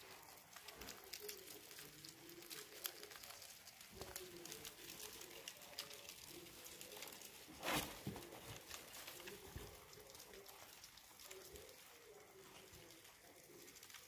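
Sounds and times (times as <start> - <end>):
roaches chewing and scrabbling: 0.0 - 14.0.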